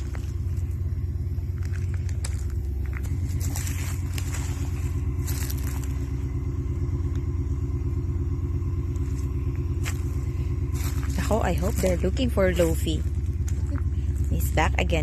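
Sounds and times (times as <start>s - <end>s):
engine droning: 0.0s - 15.0s.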